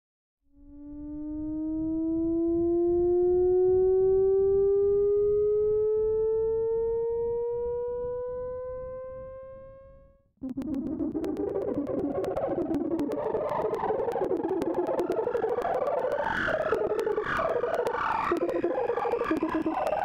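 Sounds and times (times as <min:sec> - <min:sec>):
synthesized tone gliding upward: 0:00.6 - 0:20.0
crackly clicking synthesized sound: 0:10.4 - 0:20.0.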